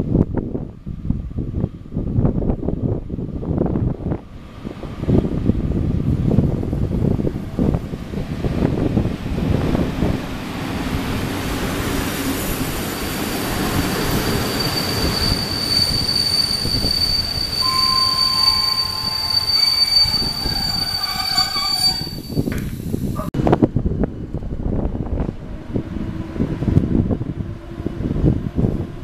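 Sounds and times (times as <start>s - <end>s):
train coaches rumbling past: 3.5s - 29.0s
high wheel squeal: 12.8s - 23.3s.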